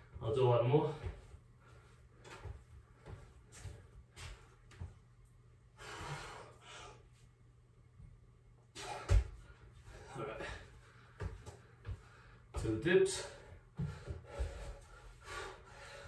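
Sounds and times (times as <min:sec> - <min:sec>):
man breathing hard: 0:05.7 - 0:07.2, 0:08.8 - 0:16.0
feet thudding on floor: 0:13.8 - 0:14.8.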